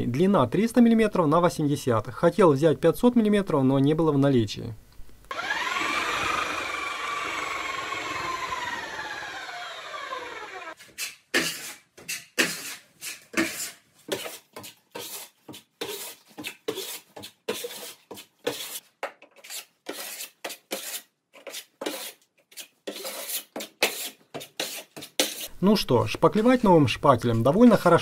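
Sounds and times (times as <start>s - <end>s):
putty knife scraping drywall: 10.7s - 25.5s.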